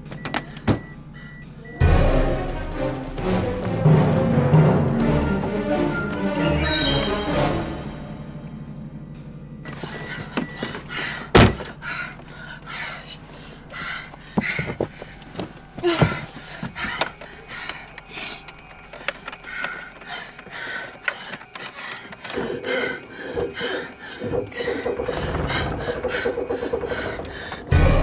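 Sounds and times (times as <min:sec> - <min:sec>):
woman breathing rapidly and gasping: 0:09.7 - 0:28.0.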